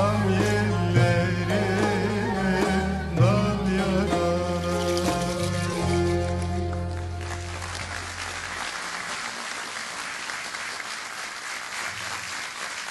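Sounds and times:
audience applause: 6.3 - 12.9.

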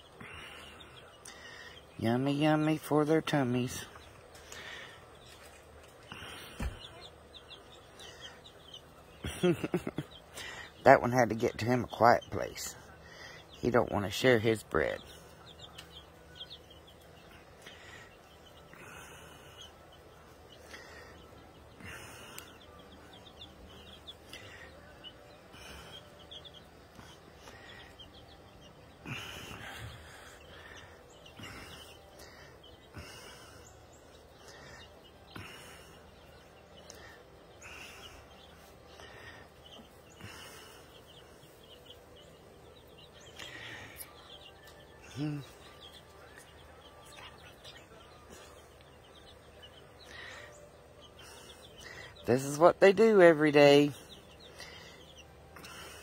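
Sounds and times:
chicks peeping faintly: 0.0 - 56.0
outdoor background noise: 0.0 - 56.0.

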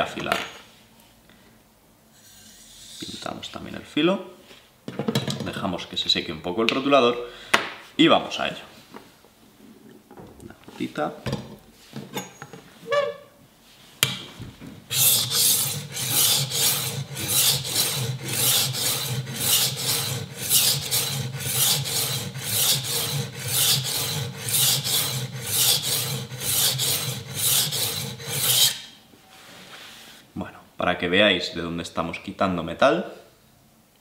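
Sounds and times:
knife scraping on sharpening plate: 14.9 - 29.0.

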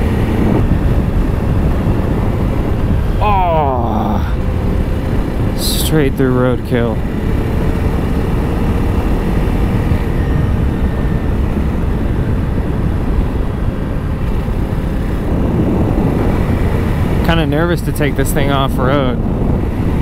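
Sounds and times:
motorcycle engine running: 0.0 - 20.0
wind rushing on microphone: 0.0 - 20.0.

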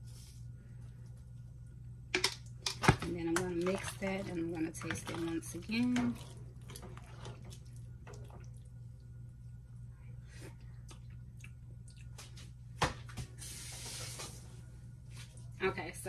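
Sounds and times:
steady low hum: 0.0 - 16.0
spoon stirring in pot: 3.0 - 8.6
pot bubbling faintly: 3.0 - 9.5.

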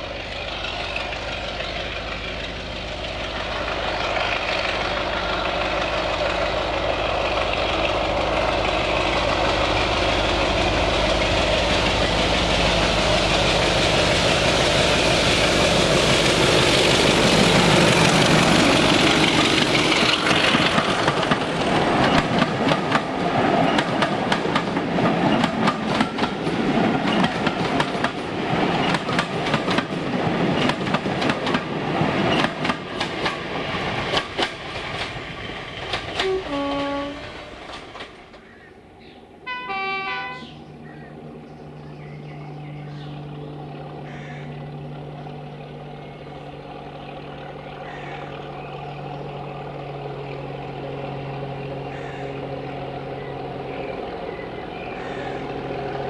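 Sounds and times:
locomotive diesel engine passing: 0.0 - 56.0
train wheels clattering on rail joints: 0.5 - 38.7
train horn: 36.2 - 37.4, 39.4 - 40.6.

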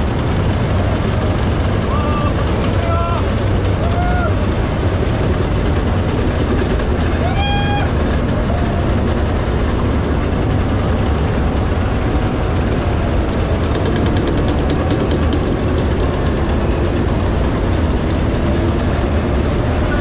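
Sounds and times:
heavy tracked vehicles rumbling: 0.0 - 20.0
quick ticking: 7.9 - 20.0.

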